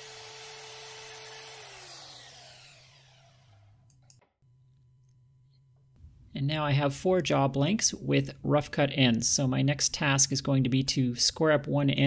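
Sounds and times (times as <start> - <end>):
band saw cutting metal: 0.0 - 3.7
motor winding down whine: 0.0 - 3.9.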